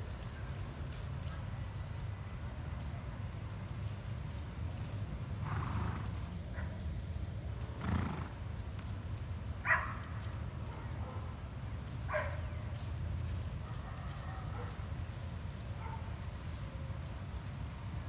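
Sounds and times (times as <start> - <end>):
horse whinnying faintly: 7.8 - 8.4.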